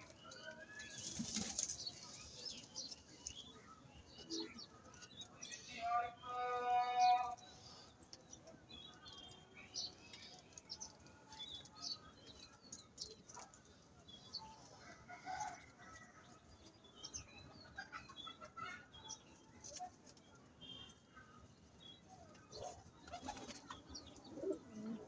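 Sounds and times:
pigeons cooing: 24.2s - 25.0s.

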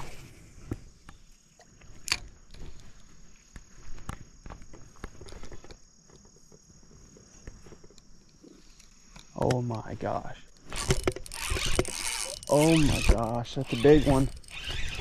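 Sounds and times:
faint clicks and rustles: 0.0s - 15.0s
insects chirring: 0.0s - 15.0s.

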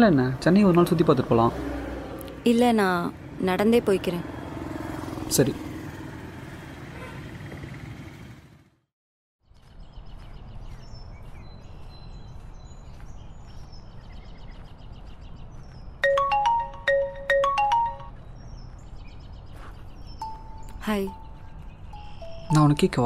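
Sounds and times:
birds chirping: 0.0s - 8.4s, 9.4s - 23.0s
faint outdoor ambience: 9.5s - 23.0s
marimba ringtone melody: 16.0s - 18.2s, 20.2s - 21.4s, 22.0s - 23.0s.

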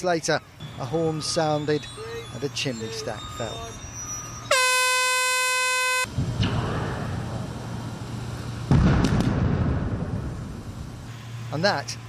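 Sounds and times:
warning horn steady note: 0.6s - 6.1s.

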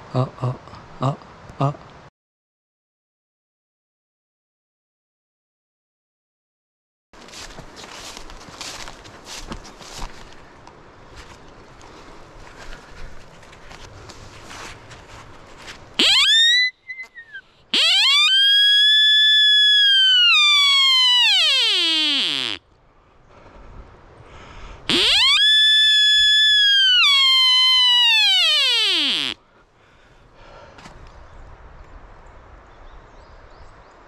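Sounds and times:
deer rutting calls: 24.9s - 29.4s.

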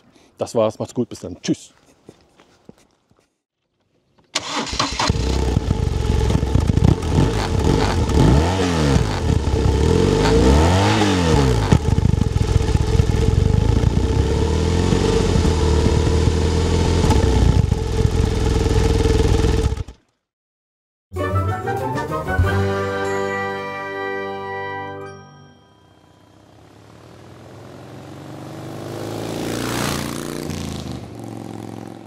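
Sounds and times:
motorcycle engine idling and revving: 4.5s - 20.0s, 26.4s - 32.0s.

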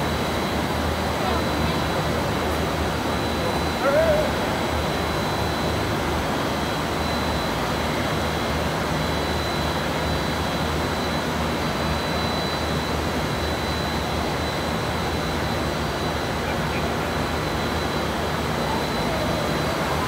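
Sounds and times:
industrial roar of motors and blowers: 0.0s - 20.0s
thin high whine: 0.0s - 20.0s.

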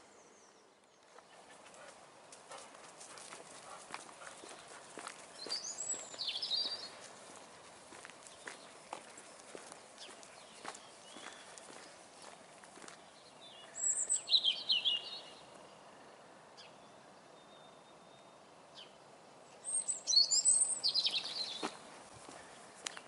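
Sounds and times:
faint outdoor background noise: 0.0s - 23.0s
songbird twittering: 5.3s - 7.0s, 10.0s - 12.0s, 13.0s - 15.5s, 17.4s - 21.8s.

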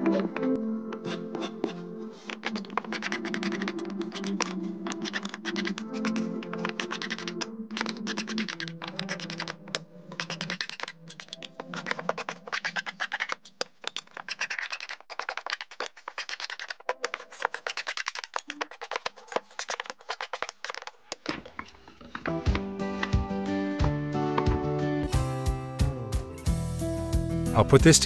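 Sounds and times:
soft background music: 0.0s - 10.8s, 22.2s - 28.0s.

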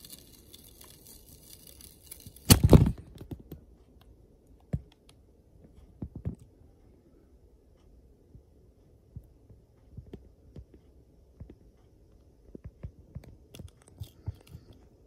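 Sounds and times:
faint steady hum: 0.0s - 15.0s
soft low thumps and clicks: 7.7s - 13.7s.

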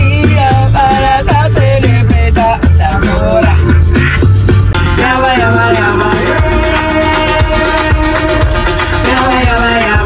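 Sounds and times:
heavy bass line and beat: 0.0s - 10.0s
person singing: 4.8s - 10.0s.

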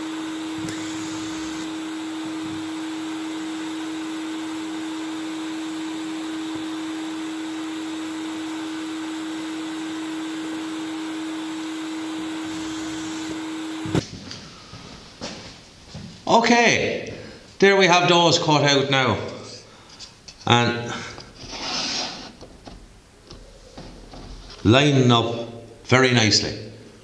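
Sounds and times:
shop vacuum running: 0.0s - 15.4s.

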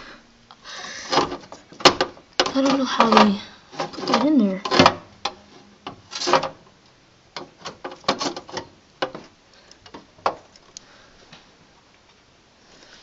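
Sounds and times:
hands clicking computer parts: 1.0s - 6.6s.

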